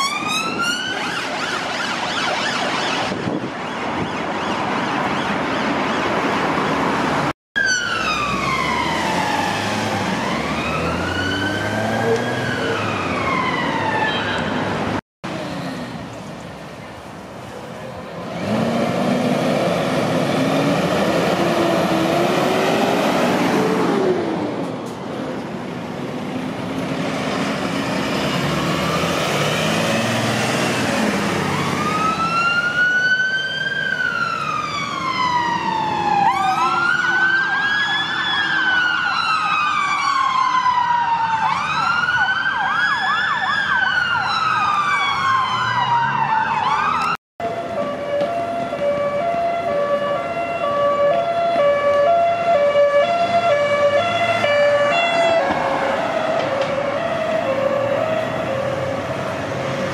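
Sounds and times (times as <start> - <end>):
siren wailing: 0.0 - 6.6, 7.6 - 14.6, 31.2 - 59.9
fire engine revving: 6.2 - 14.0, 18.2 - 59.9.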